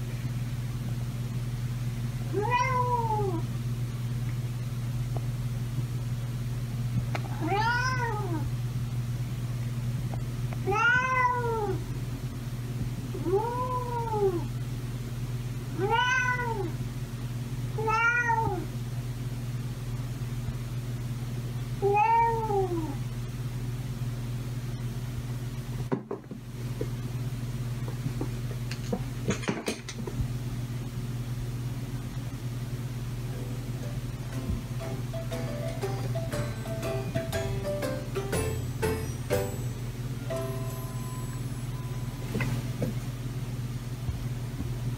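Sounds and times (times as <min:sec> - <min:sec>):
cat meowing: 0:02.3 - 0:03.4, 0:07.3 - 0:08.5, 0:10.6 - 0:11.8, 0:15.8 - 0:16.8, 0:17.8 - 0:18.7, 0:21.8 - 0:23.0
low hum: 0:33.1 - 0:44.1.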